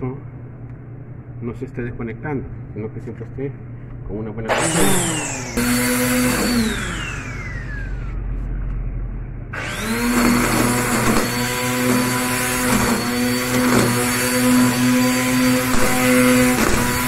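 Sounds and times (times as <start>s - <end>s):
electric string trimmer whirring: 4.5s - 8.2s, 9.6s - 17.0s.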